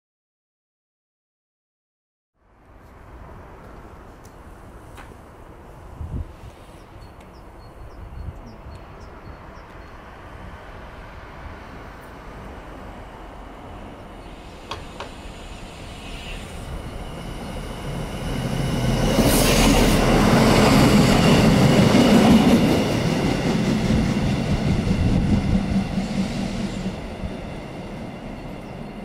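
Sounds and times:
train passing rumble: 0:02.4 - 0:29.0
brief hiss: 0:14.4 - 0:16.7.

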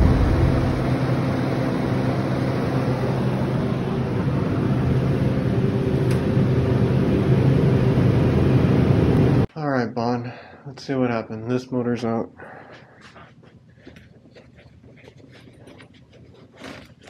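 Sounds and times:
refrigeration unit humming: 0:00.0 - 0:09.5.

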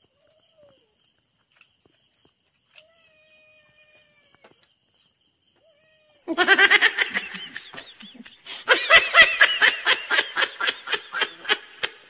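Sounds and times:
woman laughing hard: 0:06.3 - 0:12.0.

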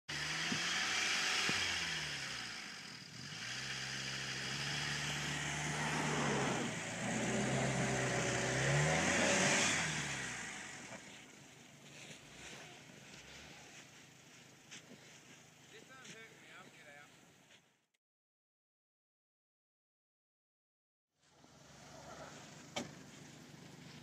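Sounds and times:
engine revving under load: 0:00.1 - 0:11.2, 0:21.3 - 0:24.0
tyres spinning in snow: 0:00.2 - 0:16.6, 0:21.3 - 0:24.0.

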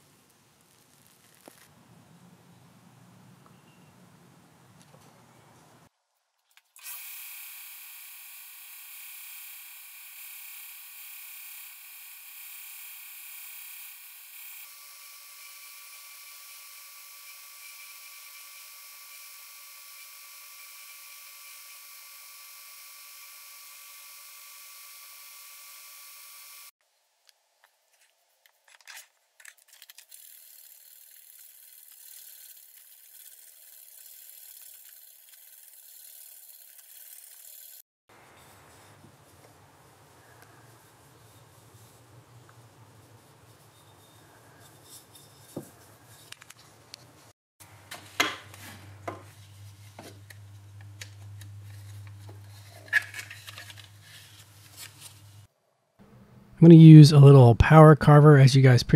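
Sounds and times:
belt grinder whining: 0:06.8 - 0:26.7.

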